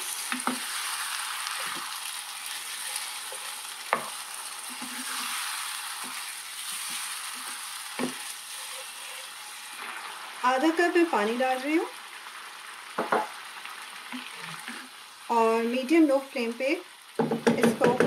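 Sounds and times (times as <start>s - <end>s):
food sizzling in pan: 0.0s - 18.0s
spatula stirring: 0.2s - 10.2s
spatula knocking on pan: 13.0s - 13.3s, 17.2s - 18.0s.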